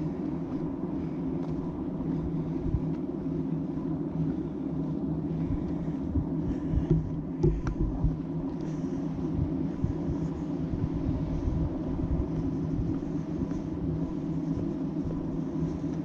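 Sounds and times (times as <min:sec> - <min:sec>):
low engine-like drone: 0:00.0 - 0:16.0
low thumps: 0:06.2 - 0:08.3.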